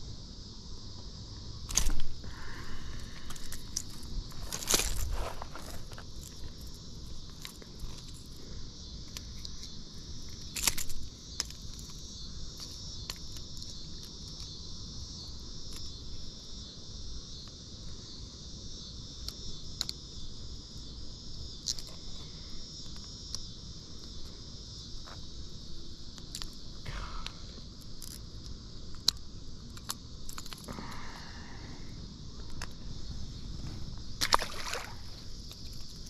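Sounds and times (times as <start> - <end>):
insects chirring: 0.0 - 36.0.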